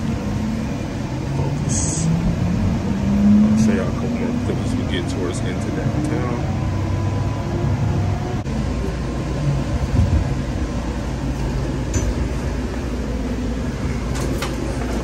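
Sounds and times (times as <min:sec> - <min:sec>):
train rumble from inside car: 0:00.0 - 0:15.0.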